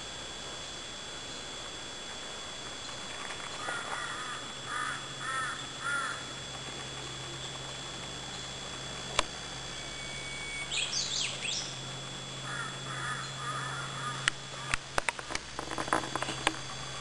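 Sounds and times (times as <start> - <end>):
forest birds calling: 2.8 - 6.3, 9.8 - 14.8.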